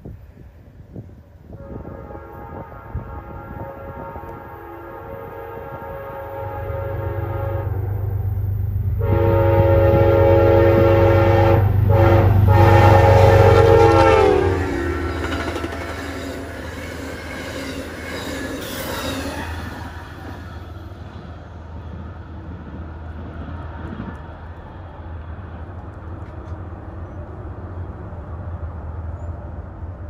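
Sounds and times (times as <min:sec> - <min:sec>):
locomotive engine rumble: 0:00.0 - 0:30.0
train air horn blasts: 0:01.5 - 0:21.0
rail clatter of passing cars: 0:06.2 - 0:30.0.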